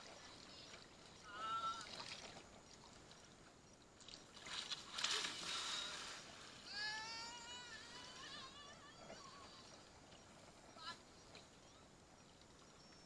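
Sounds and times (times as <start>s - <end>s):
water sloshing and splashing: 0.0s - 7.0s.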